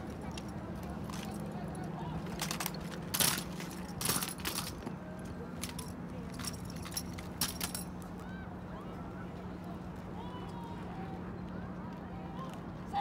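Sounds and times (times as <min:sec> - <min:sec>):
metallic rattling: 0:02.3 - 0:04.8, 0:05.6 - 0:07.9.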